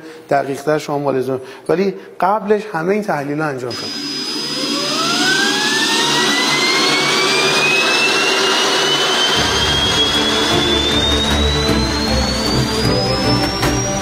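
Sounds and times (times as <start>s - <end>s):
turbojet engine whine: 3.7s - 14.0s.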